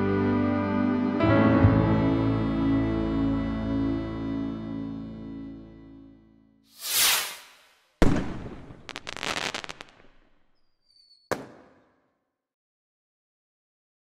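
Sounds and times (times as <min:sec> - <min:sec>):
soft music: 0:00.0 - 0:06.4
whoosh: 0:06.8 - 0:07.8
firework bang with crackling: 0:06.8 - 0:10.3, 0:11.3 - 0:11.8
sharp crack: 0:06.8 - 0:10.4.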